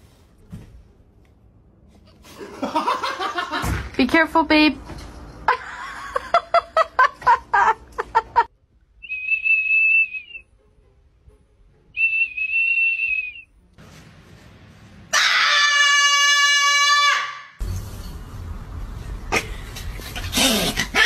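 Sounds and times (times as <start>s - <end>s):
high whistle notes: 12.0s - 13.5s.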